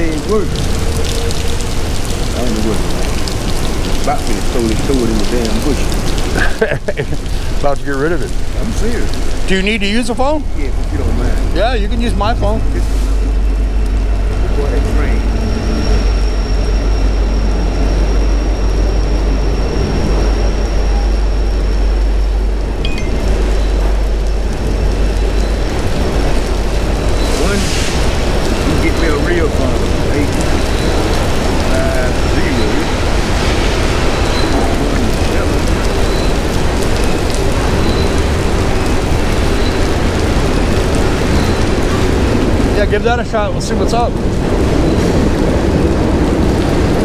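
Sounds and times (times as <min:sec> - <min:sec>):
heavy rain downpour: 0:00.0 - 0:47.0
low rumble: 0:10.2 - 0:43.2.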